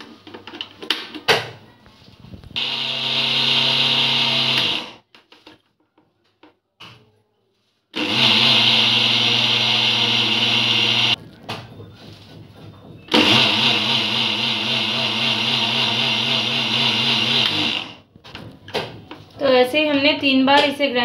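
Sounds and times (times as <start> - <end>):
mixer grinder motor running: 2.6 - 5.0, 8.0 - 11.2, 13.1 - 18.0.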